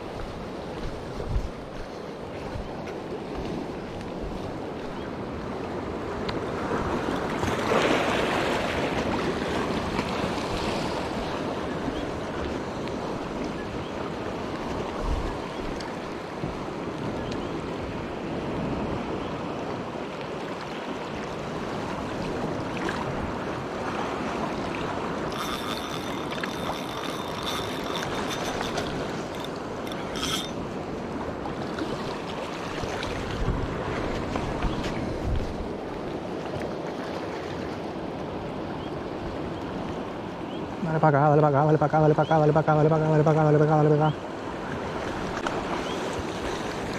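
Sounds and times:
wind on microphone: 0.0s - 19.2s, 21.5s - 36.6s
waves washing against rocks: 5.9s - 13.4s.

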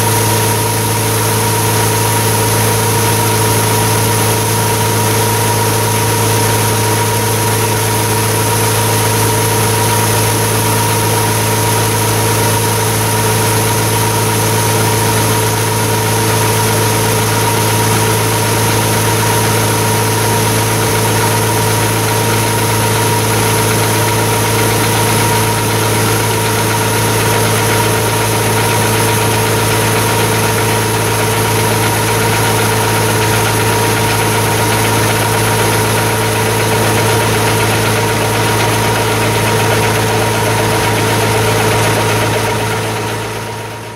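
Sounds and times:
combine harvester running: 0.0s - 43.9s.

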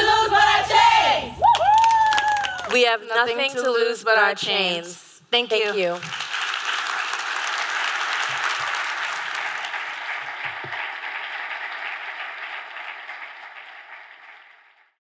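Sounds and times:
large audience applauding: 1.4s - 2.8s, 6.0s - 15.0s.

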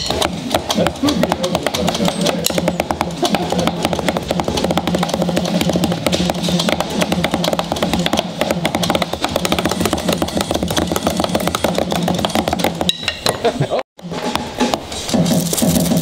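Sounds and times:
steady low hum: 0.3s - 12.8s.

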